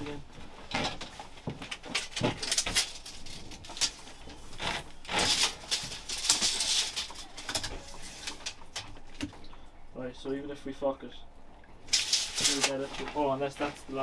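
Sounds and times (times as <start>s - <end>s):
scraping or rustling: 0.6s - 9.2s, 11.9s - 14.0s.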